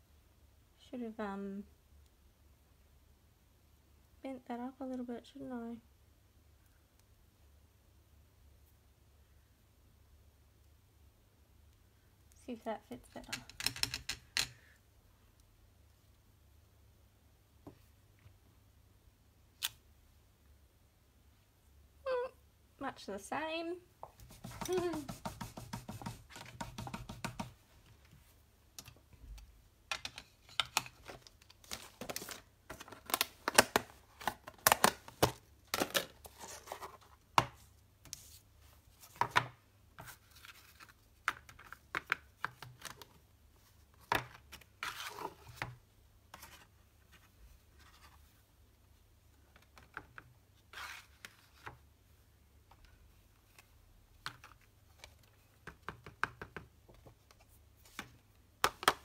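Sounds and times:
hands handling card and plastic tray: 29.9s - 38.4s.

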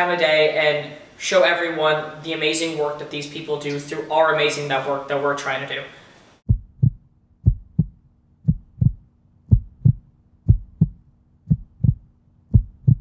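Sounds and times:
heartbeat thumps: 6.5s - 13.0s.

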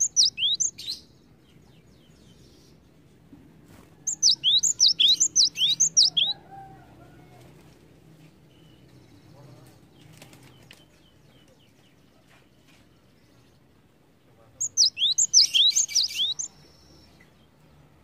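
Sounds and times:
bird whistling sharp high notes: 14.7s - 16.5s.

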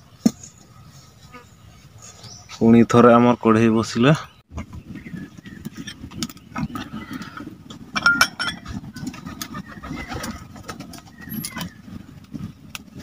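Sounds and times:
pigeons cooing: 5.0s - 7.7s, 8.6s - 13.0s.

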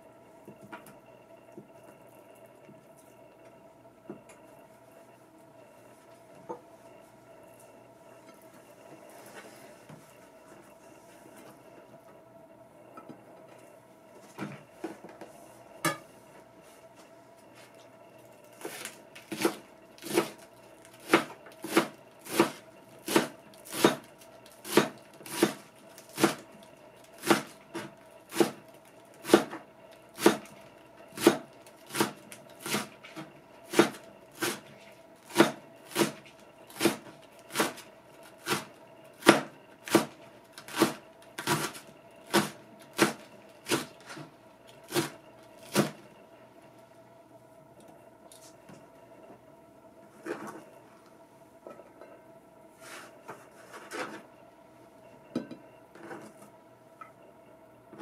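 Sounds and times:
faint steady hum: 0.0s - 58.0s
knife chopping on cutting board: 21.0s - 24.0s, 24.6s - 26.4s, 35.3s - 36.2s, 38.4s - 40.1s.

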